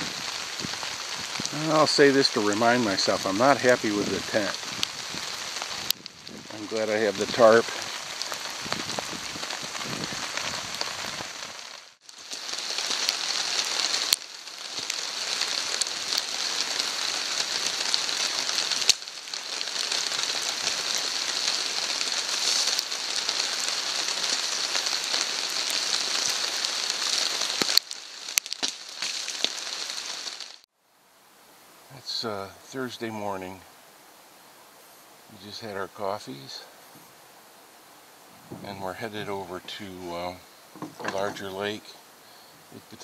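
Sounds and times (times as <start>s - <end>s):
light rain falling: 0.0s - 43.0s
sharp pops: 40.7s - 41.5s.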